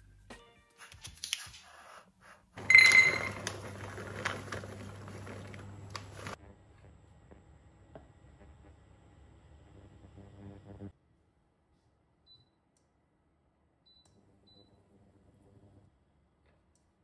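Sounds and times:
plastic bag crinkling: 2.6 - 6.4.

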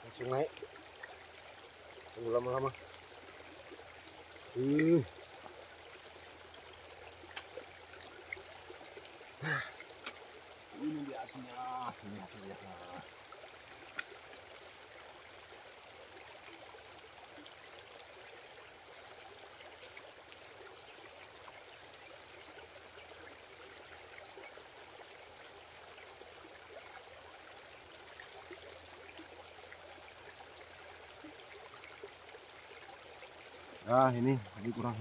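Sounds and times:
outdoor background hiss: 0.0 - 35.0
small ticks: 7.1 - 8.4, 9.9 - 10.3, 13.8 - 14.5.

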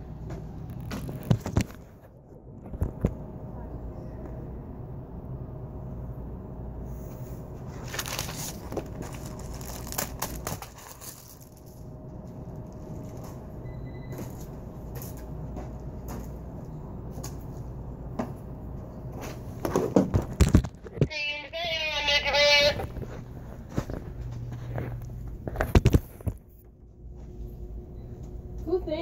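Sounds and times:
store background hum: 0.0 - 29.0.

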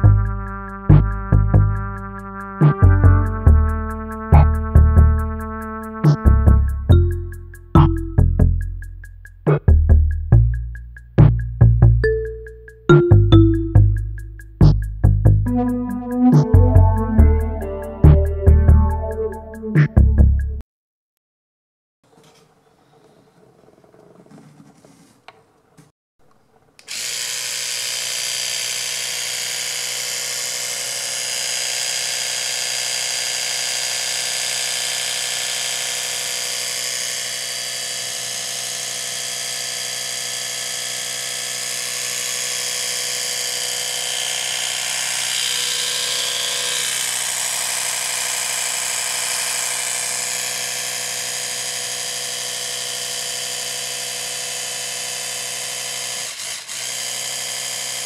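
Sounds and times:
electric toothbrush buzzing: 26.8 - 58.0.

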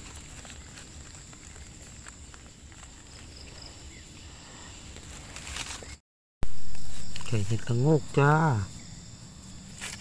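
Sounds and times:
rustling in leaf litter: 0.0 - 6.0
high insect whine: 0.0 - 10.0.

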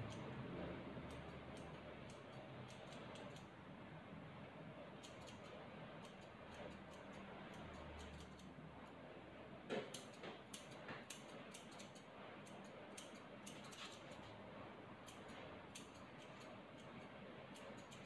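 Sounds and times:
grooming tool clicks: 1.0 - 3.5, 5.0 - 8.5, 9.7 - 14.3, 15.0 - 18.0.

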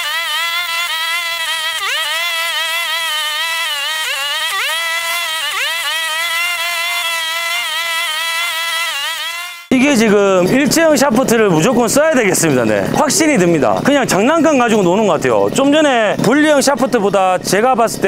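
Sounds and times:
brush cutter running at high revs: 0.0 - 10.2.

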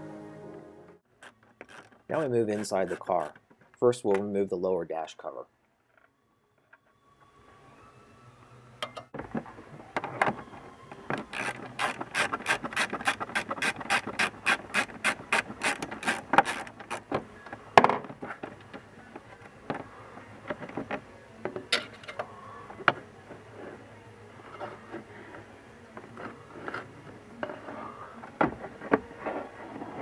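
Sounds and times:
socket ratchet clicking: 11.4 - 17.0.

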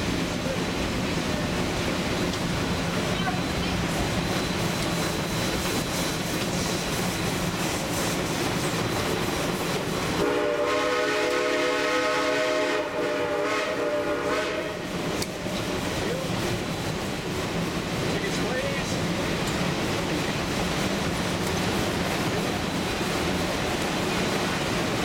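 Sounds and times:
train running on track: 0.0 - 25.0
steam locomotive whistle: 10.1 - 15.0.

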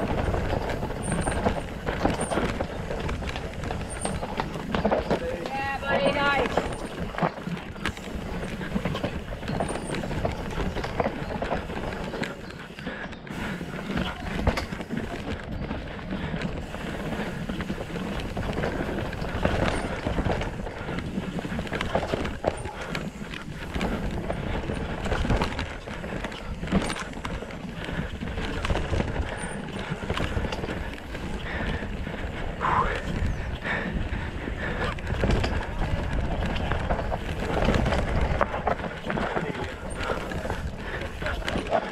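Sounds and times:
bike clattering over bumps: 0.0 - 41.9.

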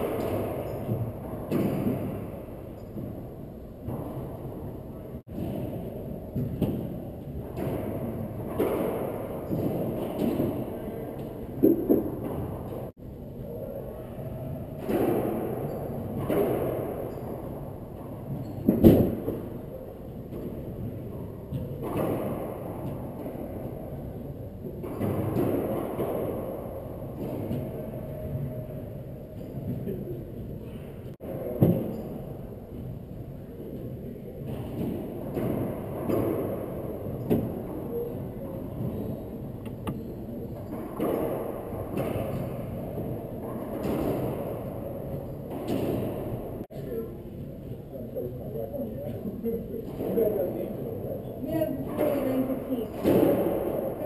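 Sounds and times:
ball striking racquets and walls: 0.0 - 12.9, 14.5 - 46.7, 51.8 - 54.0
low hum of enclosed court: 0.0 - 54.0.

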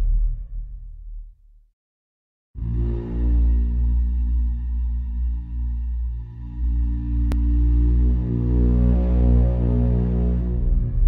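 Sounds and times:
deep horn-like drone: 2.6 - 11.0.

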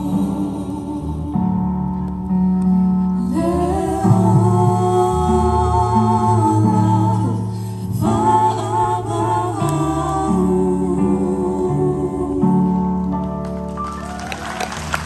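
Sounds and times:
group singing a carol: 3.2 - 13.1.

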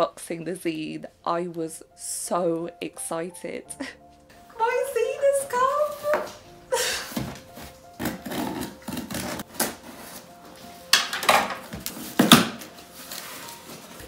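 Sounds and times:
cardboard tearing: 7.2 - 10.4, 11.7 - 14.0
scissors cutting packing tape: 8.0 - 10.2.

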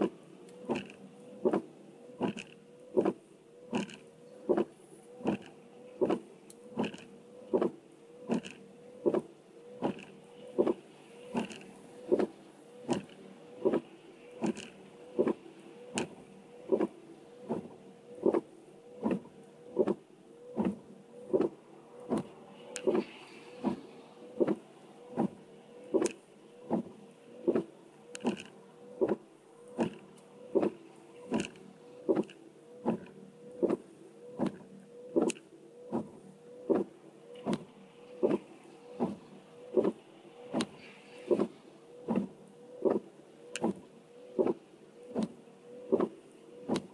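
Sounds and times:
faint motor hum: 0.0 - 46.9
windscreen wipers sweeping: 16.0 - 19.2, 20.6 - 28.4, 29.8 - 33.8, 35.9 - 37.6, 38.2 - 43.8, 44.4 - 46.9.

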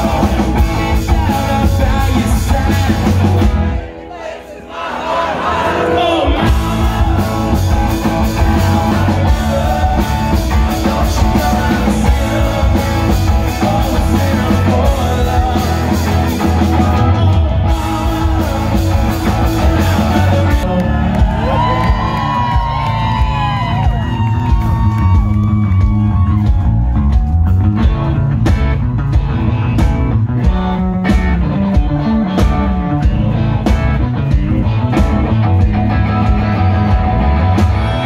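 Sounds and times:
electric guitar: 0.0 - 4.0, 5.7 - 38.0
drums: 0.0 - 4.3, 5.1 - 38.0
crowd shouting: 0.0 - 15.6
person singing: 5.4 - 22.9.

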